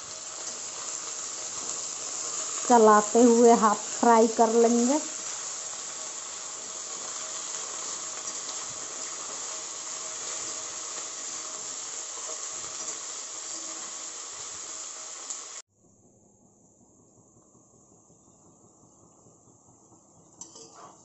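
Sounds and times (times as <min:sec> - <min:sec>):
vegetables sizzling in oil: 0:00.0 - 0:15.7.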